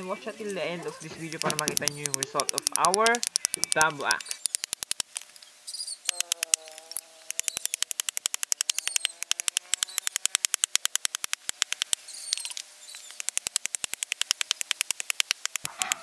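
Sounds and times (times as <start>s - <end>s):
machete chopping bamboo: 7.5s - 12.0s.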